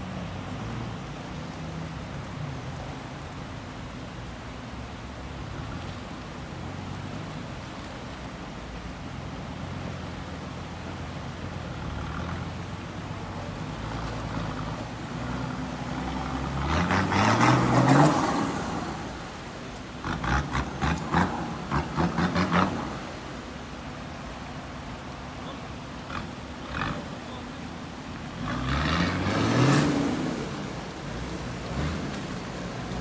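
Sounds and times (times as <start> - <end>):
water splashing around wheels: 0.0 - 33.0
car engine revving: 13.8 - 19.0, 28.2 - 33.0.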